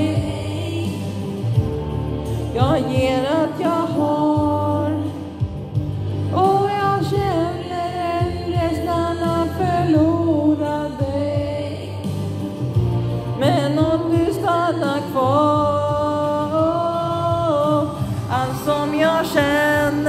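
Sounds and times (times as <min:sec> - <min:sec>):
person singing a slow ballad: 0:00.0 - 0:20.0.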